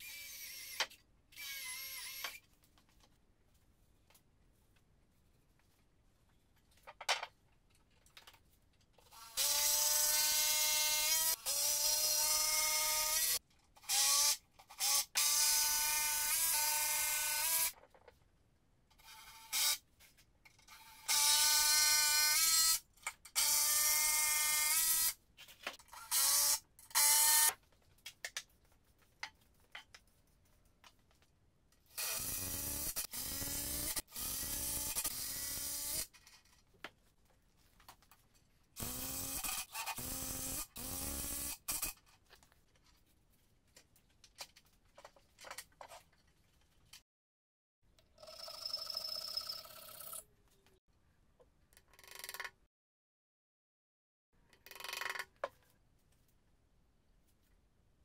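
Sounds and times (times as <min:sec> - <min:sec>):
power drill whining: 0:38.8 - 0:41.9.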